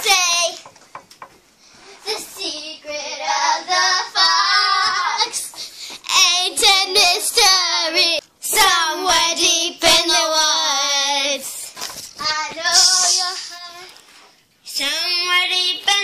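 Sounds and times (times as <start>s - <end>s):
girls singing high notes: 2.1s - 11.5s.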